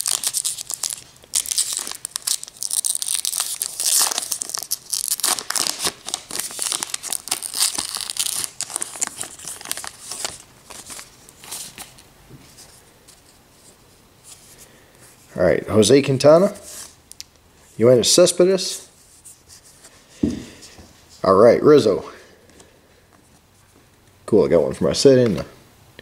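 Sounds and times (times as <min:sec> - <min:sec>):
paper wrapper tearing and crinkling: 0:00.0 - 0:12.0.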